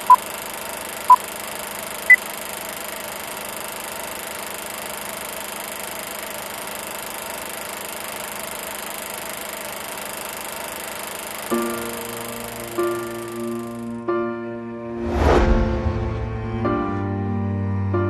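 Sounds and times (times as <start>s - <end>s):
film countdown beeps: 0.0s - 0.2s
steady mechanical whir: 0.0s - 14.0s.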